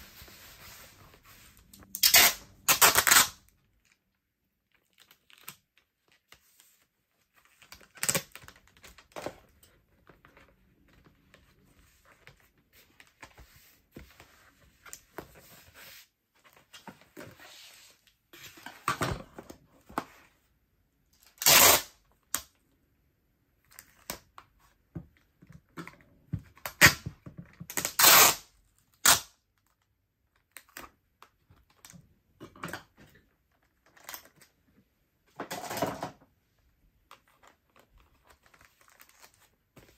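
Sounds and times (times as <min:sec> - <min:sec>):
packing tape ripped off roll: 0:01.8 - 0:03.5, 0:07.9 - 0:08.4, 0:21.3 - 0:22.5, 0:27.7 - 0:29.4.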